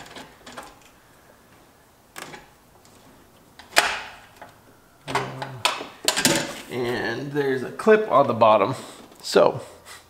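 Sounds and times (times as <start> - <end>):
low grunt: 5.1 - 5.7.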